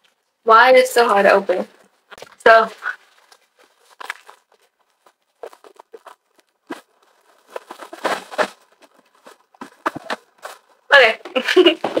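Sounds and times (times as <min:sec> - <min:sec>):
plastic wrapping crinkling: 0:01.8 - 0:10.9
cardboard box rustling: 0:02.5 - 0:10.8.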